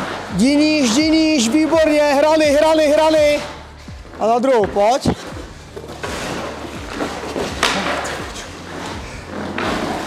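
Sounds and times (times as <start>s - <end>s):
skate blades scraping ice: 0.0s - 10.0s.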